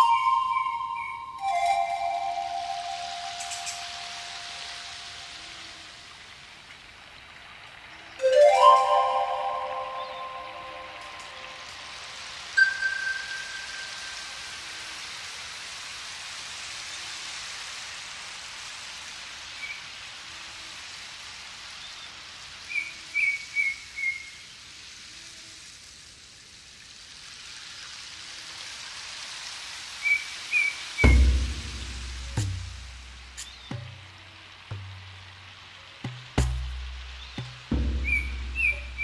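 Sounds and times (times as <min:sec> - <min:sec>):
birds chirping: 0:00.0 - 0:05.8, 0:08.2 - 0:11.8, 0:31.0 - 0:39.0
rain hissing: 0:00.0 - 0:39.0
frame drum boom: 0:31.0 - 0:34.0, 0:36.0 - 0:39.0.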